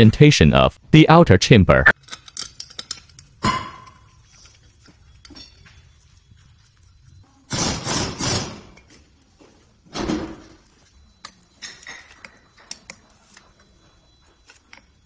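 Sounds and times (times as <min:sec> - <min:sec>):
metal parts clattering: 0:02.0 - 0:05.9.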